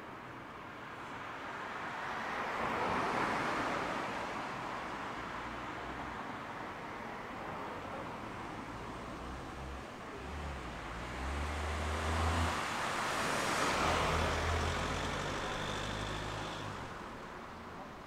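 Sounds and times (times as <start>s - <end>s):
cars driving past: 8.8s - 18.0s.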